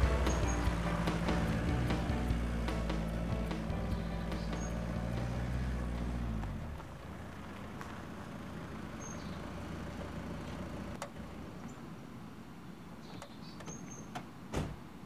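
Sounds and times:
low steady drone: 0:00.0 - 0:06.0
van rolling on dirt: 0:00.0 - 0:11.8.

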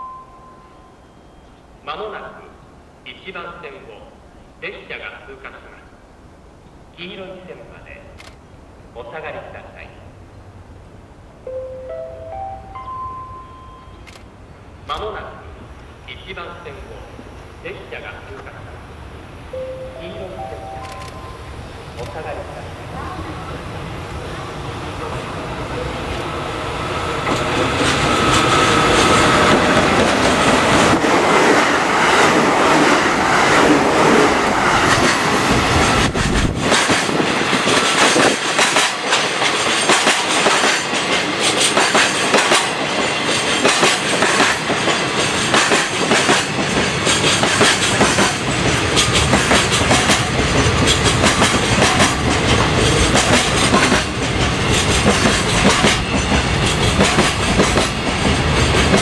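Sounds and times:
train wheels clattering over rail joints: 0:27.2 - 0:59.0.

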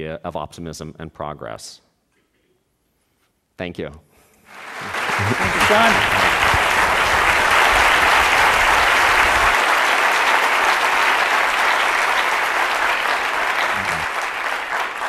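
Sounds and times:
large audience applauding: 0:04.5 - 0:15.0.

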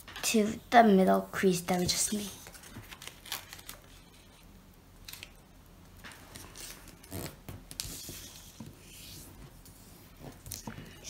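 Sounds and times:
paper being folded: 0:01.9 - 0:04.4, 0:06.1 - 0:11.0.

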